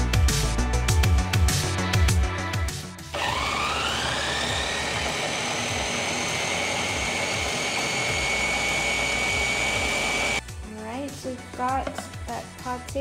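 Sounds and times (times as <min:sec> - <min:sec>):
food processor motor whining: 0:03.1 - 0:10.4.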